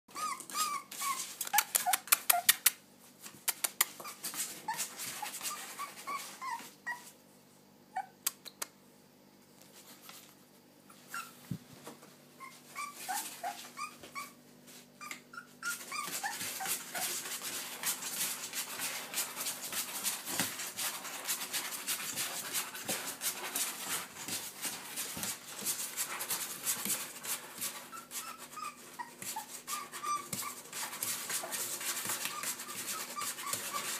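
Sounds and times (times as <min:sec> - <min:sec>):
puppy whimpering and yipping: 0:00.1 - 0:02.7, 0:03.8 - 0:07.2, 0:07.9 - 0:08.2, 0:10.9 - 0:11.6, 0:12.4 - 0:14.4, 0:15.0 - 0:19.0, 0:27.6 - 0:33.9
scratching in cardboard box: 0:15.9 - 0:33.9.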